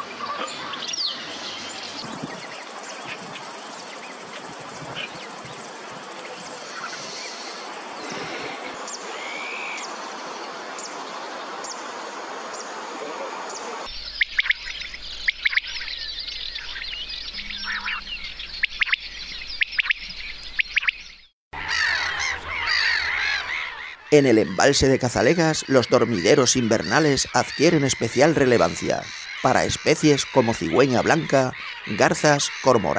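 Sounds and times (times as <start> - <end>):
birds chirping: 0.0 - 32.9
outdoor hiss: 1.3 - 14.2.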